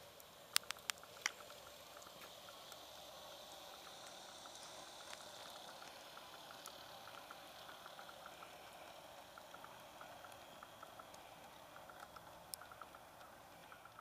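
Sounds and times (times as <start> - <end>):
model train wheels clicking: 0.0 - 14.0
steady soft hiss: 0.0 - 14.0.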